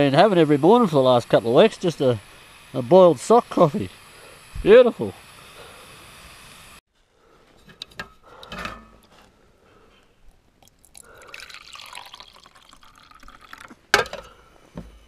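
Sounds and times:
coffee trickling into cup: 10.6 - 13.9.

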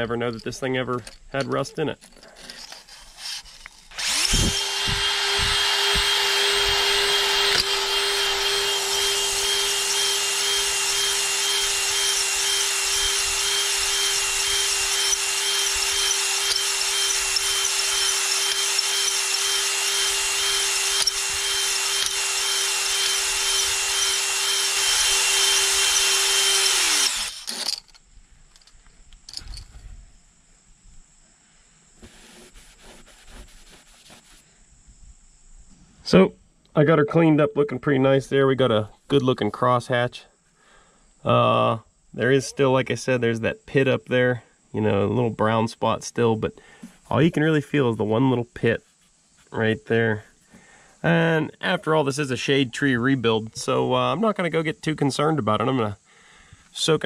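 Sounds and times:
drill motor whine: 3.9 - 28.0
stones grinding against metal: 27.0 - 28.0.

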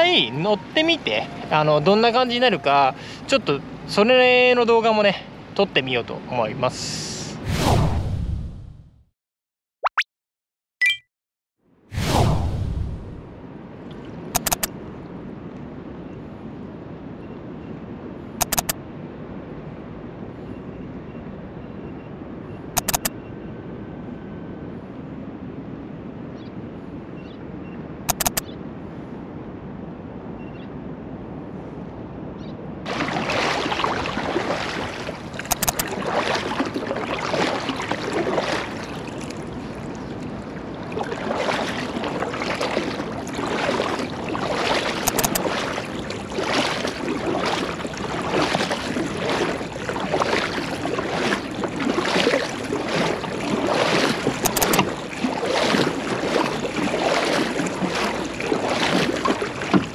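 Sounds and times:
water splashing around kayak bow: 32.9 - 59.9.

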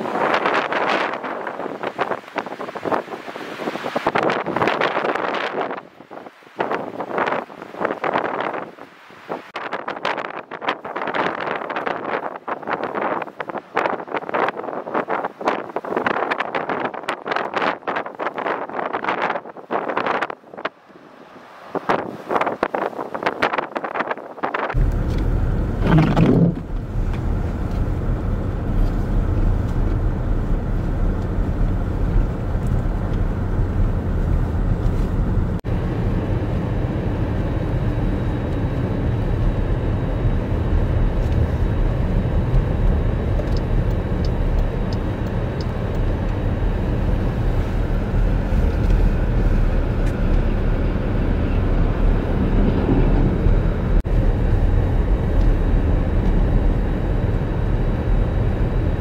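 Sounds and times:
vehicle driving rumble: 24.7 - 59.0.

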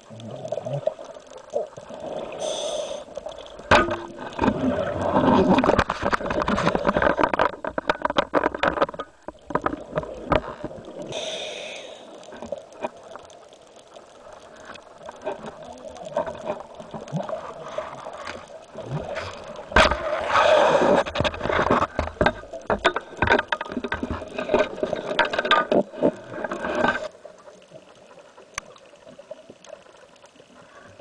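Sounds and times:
exhaled bubbles gurgling: 0.0 - 8.0, 8.9 - 23.1
diver's breathing hiss: 2.2 - 3.2, 11.1 - 12.2, 20.0 - 21.1
small clicks and knocks: 5.2 - 11.0, 21.0 - 30.3.

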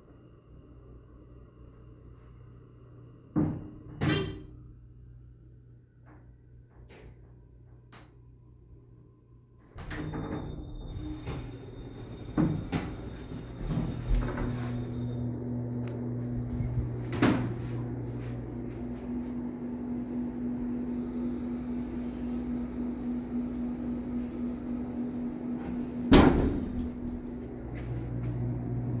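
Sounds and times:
steady low hum: 0.0 - 29.0
elevator doors closing with thud: 9.6 - 29.0.

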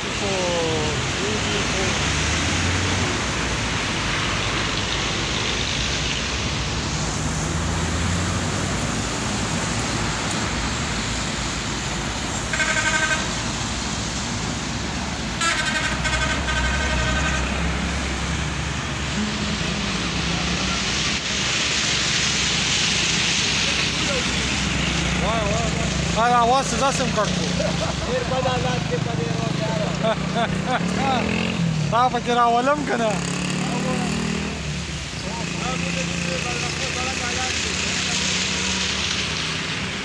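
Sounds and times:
tyres hissing on wet road: 0.0 - 40.0
vehicle horn: 12.5 - 13.4, 15.4 - 17.7.

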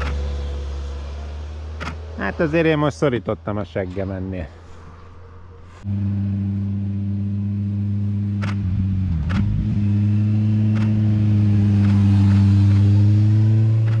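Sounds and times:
vehicle engine running: 0.0 - 4.7, 5.4 - 14.0
sharp clicks: 8.4 - 9.5, 10.7 - 11.0, 11.8 - 12.9, 13.8 - 14.0.

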